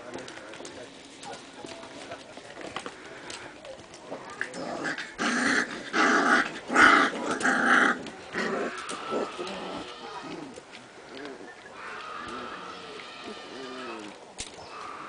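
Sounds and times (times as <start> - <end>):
puppies growling in play: 4.1 - 14.3.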